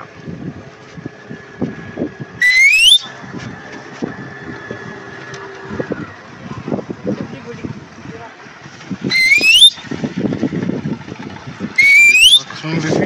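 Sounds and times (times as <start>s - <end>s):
outboard motor running: 0.0s - 13.0s
loud rising whistle: 2.4s - 3.2s, 9.1s - 9.8s, 11.8s - 12.4s.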